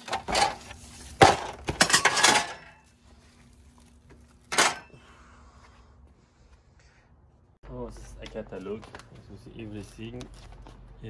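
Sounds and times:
metal pieces knocking: 0:01.2 - 0:02.8.

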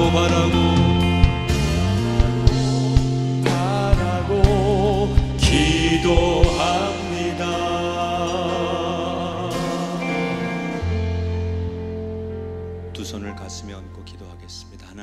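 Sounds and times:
drum hits: 0:00.0 - 0:07.3
band chord ringing: 0:00.0 - 0:15.0.

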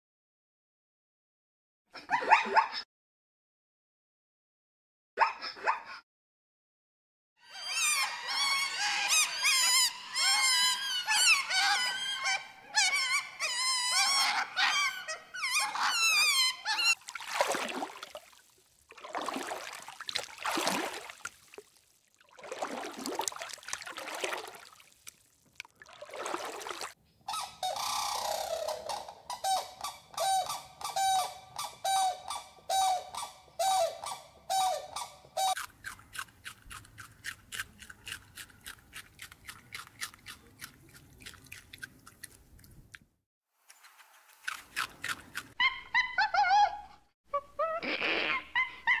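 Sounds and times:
otters chirping and squeaking: 0:07.5 - 0:17.0, 0:27.3 - 0:35.7.

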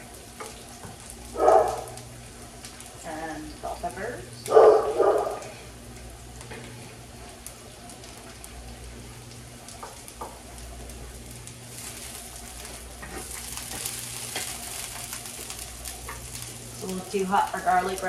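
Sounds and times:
vegetables sizzling in a skillet: 0:00.0 - 0:18.0
wooden spatula stirring: 0:11.7 - 0:17.2.

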